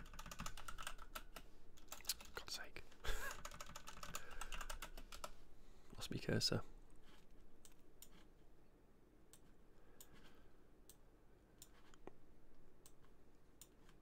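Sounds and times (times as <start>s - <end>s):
computer mouse clicks: 7.6s - 8.3s, 11.6s - 12.2s.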